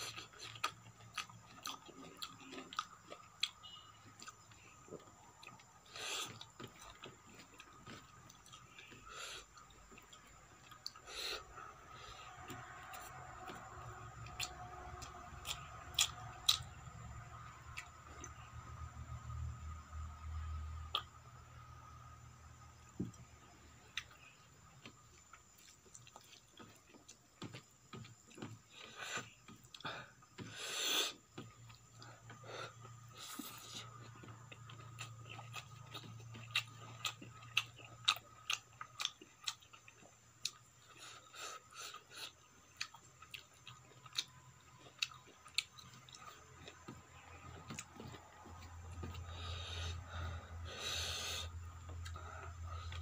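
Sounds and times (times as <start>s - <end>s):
chewing and wet mouth clicks: 20.8s - 21.2s, 31.4s - 50.0s.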